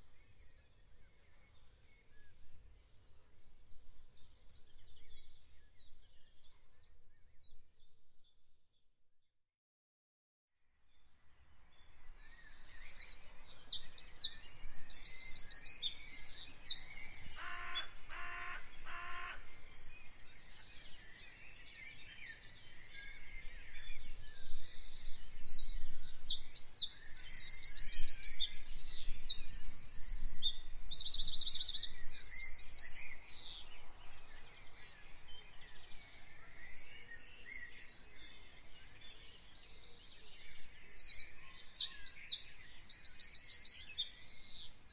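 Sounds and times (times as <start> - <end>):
songbirds singing: 0.0 - 8.8, 10.6 - 44.9
lower bird call: 16.8 - 19.7.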